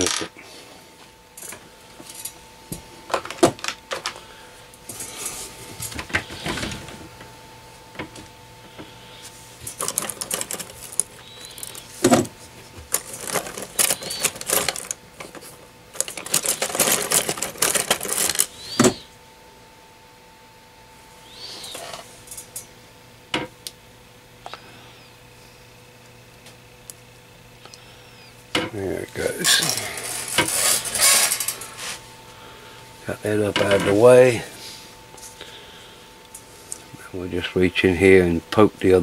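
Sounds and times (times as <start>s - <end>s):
faint electrical hum: 0.0s - 39.0s
metal tools clinking and rattling: 9.6s - 12.2s, 12.9s - 18.6s, 29.4s - 31.8s.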